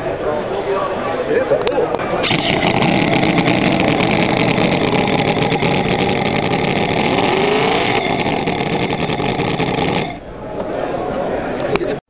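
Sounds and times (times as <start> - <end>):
model engine buzzing: 2.2 - 10.3.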